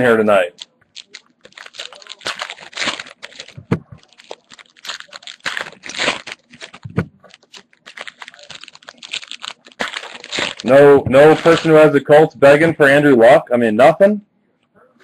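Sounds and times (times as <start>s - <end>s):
cards shuffling clicks and rustles: 0.5s - 11.8s.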